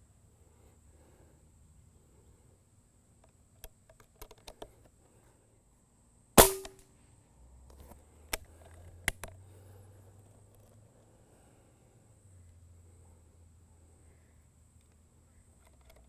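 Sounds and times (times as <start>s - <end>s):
air rifle shot: 6.4s - 6.8s.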